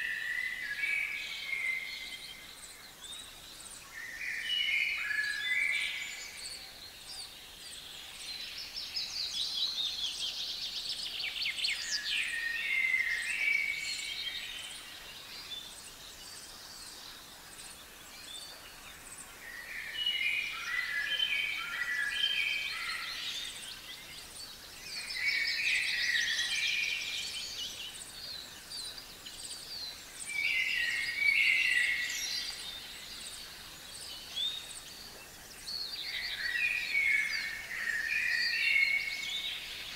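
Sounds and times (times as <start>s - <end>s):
songbirds singing: 0.0s - 39.9s.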